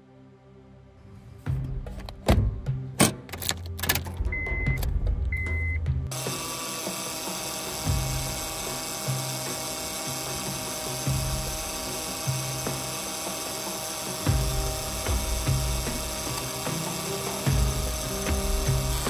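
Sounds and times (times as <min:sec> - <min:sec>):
car engine running: 0:04.0 - 0:19.0
short high beep: 0:04.4 - 0:05.8
power steering pump whining: 0:06.1 - 0:19.0.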